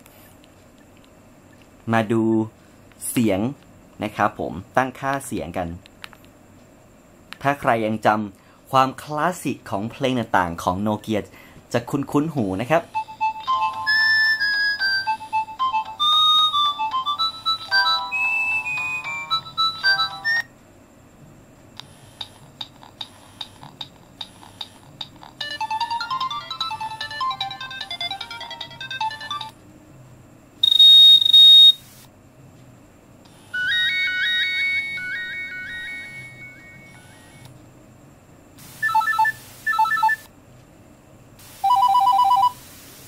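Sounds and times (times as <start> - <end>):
polyphonic ringtone melodies: 13.0 - 20.5, 25.4 - 29.5, 33.6 - 37.1
high beeps: 30.6 - 31.8.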